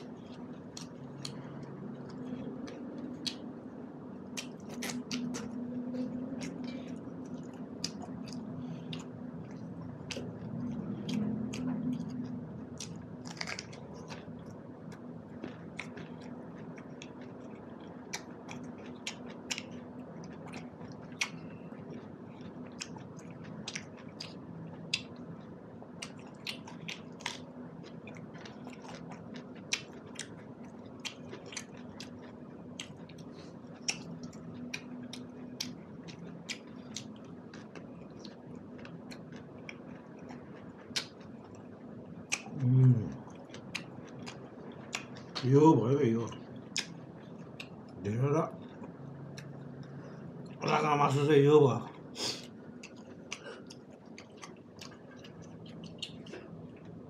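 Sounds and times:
man chewing food: 0:00.0 - 0:45.5, 0:46.2 - 0:51.2, 0:51.8 - 0:57.0
low steady hum: 0:00.0 - 0:57.0.

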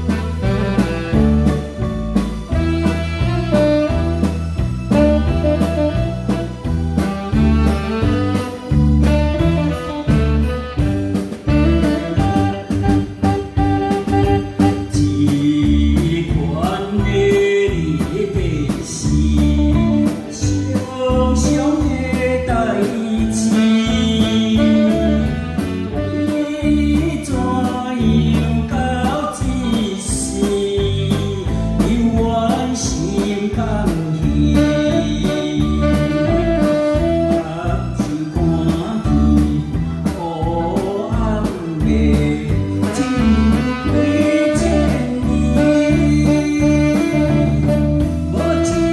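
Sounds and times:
electric guitar: 0:00.0 - 0:48.9
saxophone: 0:00.0 - 0:48.9
steady beat: 0:00.0 - 0:48.9
man singing into microphone: 0:11.6 - 0:48.9.

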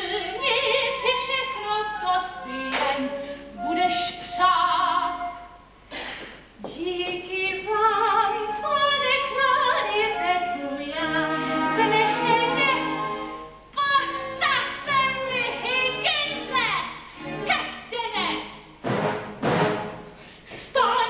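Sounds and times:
woman singing operatically: 0:00.0 - 0:05.5, 0:06.6 - 0:18.6, 0:20.5 - 0:21.0
instrumental accompaniment: 0:08.2 - 0:20.4.

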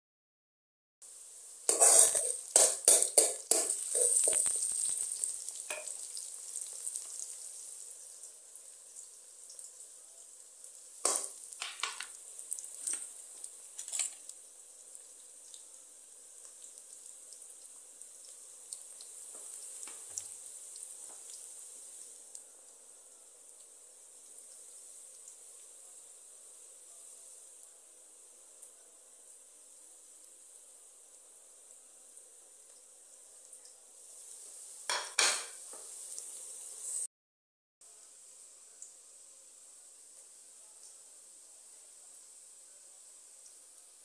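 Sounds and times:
onions sizzling in oil: 0:01.0 - 0:37.1, 0:37.8 - 0:44.0
utensil scraping a pan: 0:01.7 - 0:04.6.

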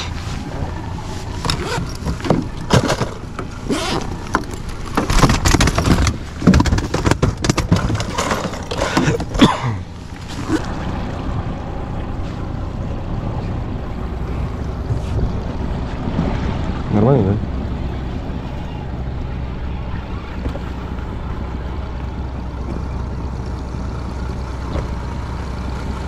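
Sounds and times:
outboard motor running: 0:00.0 - 0:26.0
knocks and rattles: 0:01.5 - 0:09.5
water rushing: 0:08.1 - 0:25.5.

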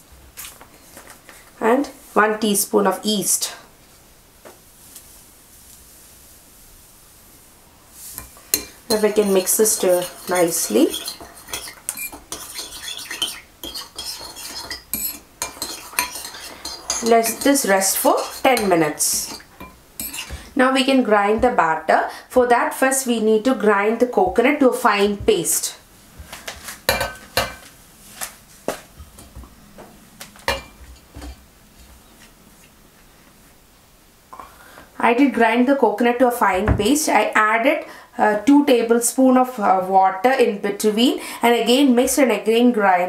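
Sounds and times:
metal spoon scraping a bowl: 0:08.2 - 0:20.4.

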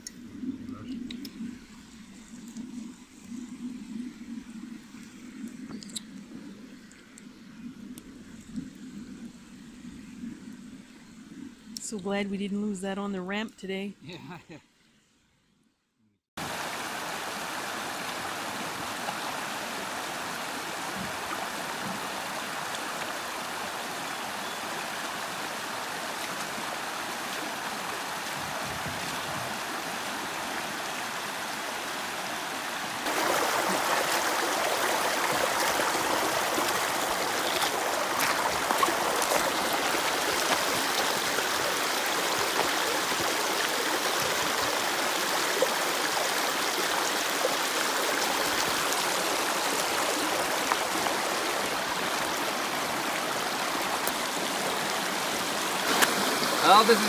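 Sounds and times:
river water rushing over gravel: 0:16.4 - 0:57.0.

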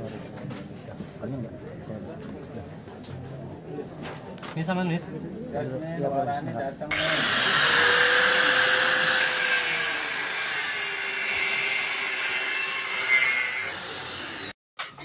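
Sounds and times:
power tool whining: 0:06.9 - 0:14.6.

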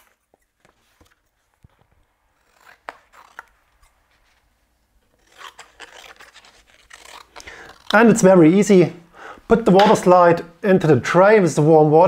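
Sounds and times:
scissors snipping paper: 0:02.3 - 0:04.0, 0:05.1 - 0:08.3.

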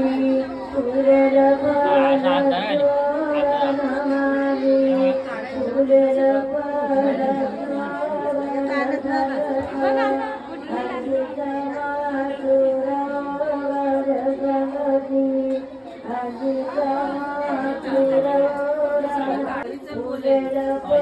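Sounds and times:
person chanting: 0:00.0 - 0:10.0.

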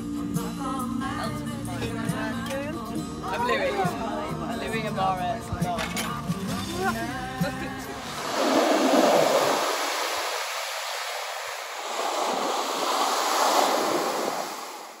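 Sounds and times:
ocean surf breaking on beach: 0:07.8 - 0:15.0.

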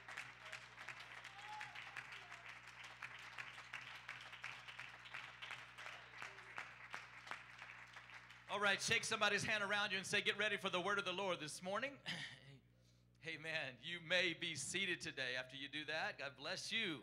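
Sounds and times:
congregation clapping: 0:00.0 - 0:09.0.

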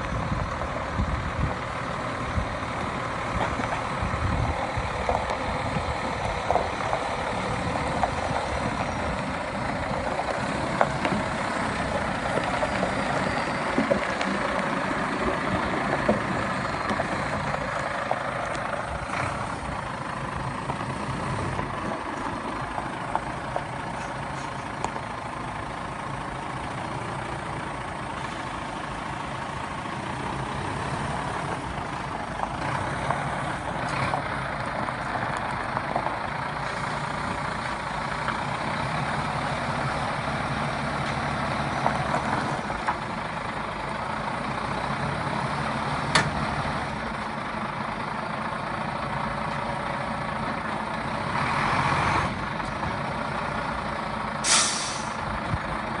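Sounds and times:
truck diesel engine running: 0:00.0 - 0:56.0
air brake hiss: 0:54.4 - 0:55.2.

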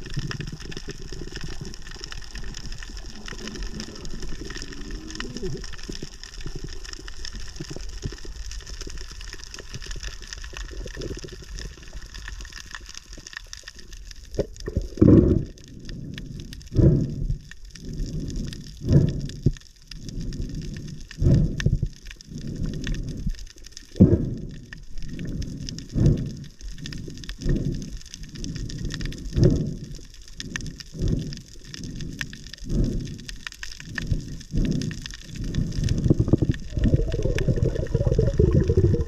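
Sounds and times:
fine underwater crackling: 0:00.0 - 0:39.0
low rumble: 0:24.0 - 0:39.0.

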